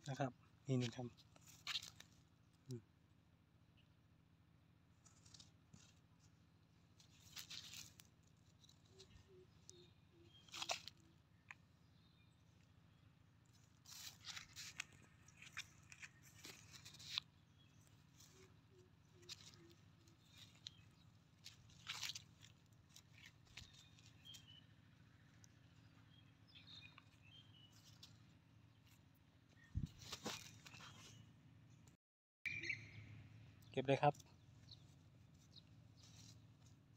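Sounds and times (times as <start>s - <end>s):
footsteps on dry leaves: 1.4s - 2.1s, 7.0s - 8.1s, 10.4s - 11.0s, 13.6s - 17.3s, 19.2s - 24.6s, 29.9s - 31.1s.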